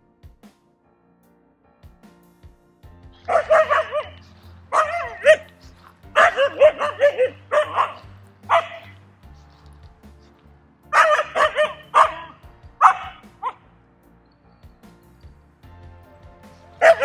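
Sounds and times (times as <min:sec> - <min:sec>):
dog play-barking and yipping: 0:03.2 - 0:09.0, 0:11.0 - 0:13.6.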